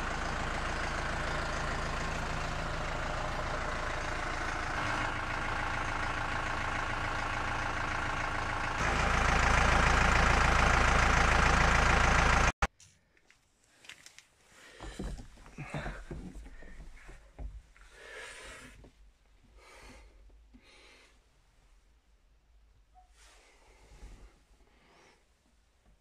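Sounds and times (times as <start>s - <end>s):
tractor diesel engine idling: 0.0s - 12.7s.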